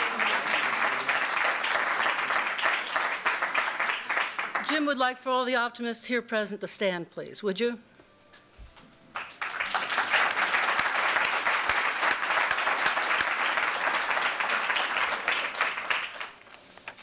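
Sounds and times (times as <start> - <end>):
audience applause: 0.0 - 4.7, 9.1 - 16.5.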